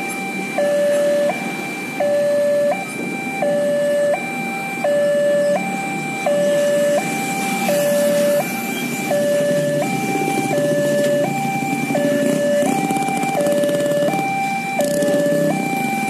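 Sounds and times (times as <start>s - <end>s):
road traffic noise: 0.0s - 16.0s
two-tone crossing alarm: 0.0s - 16.0s
motorcycle: 5.5s - 16.0s.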